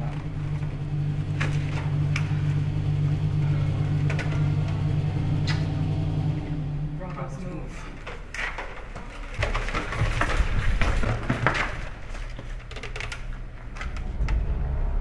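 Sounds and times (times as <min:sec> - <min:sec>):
low rumble: 0:00.0 - 0:08.4, 0:13.3 - 0:15.0.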